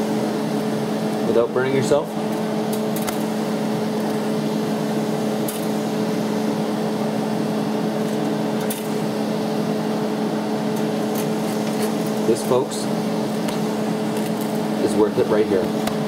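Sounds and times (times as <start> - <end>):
machine hum: 0.0 - 16.0.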